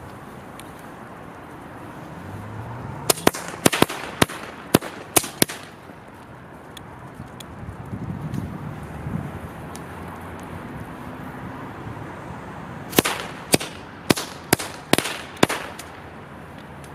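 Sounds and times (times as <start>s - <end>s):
firecracker bangs: 3.1s - 5.8s, 12.9s - 16.0s.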